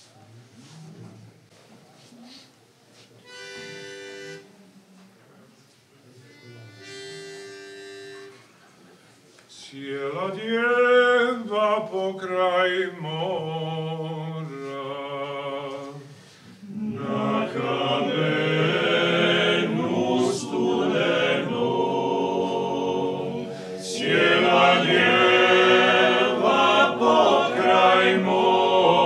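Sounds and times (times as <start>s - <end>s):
male a cappella singing: 9.6s - 16.1s, 16.7s - 29.0s
pitch pipe notes: 19.7s - 29.0s.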